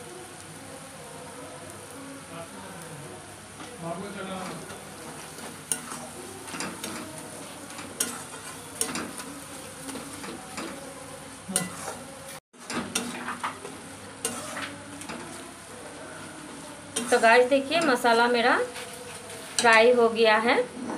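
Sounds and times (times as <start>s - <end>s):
masala sizzling in a pan: 0.0s - 20.8s
metal spatula scraping a pan: 4.4s - 15.5s, 16.2s - 20.0s.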